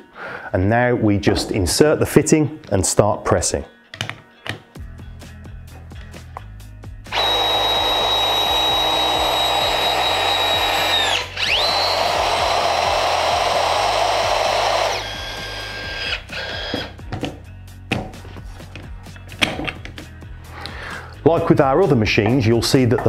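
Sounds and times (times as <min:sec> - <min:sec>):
press tool motor whine: 0:07.1 - 0:17.0.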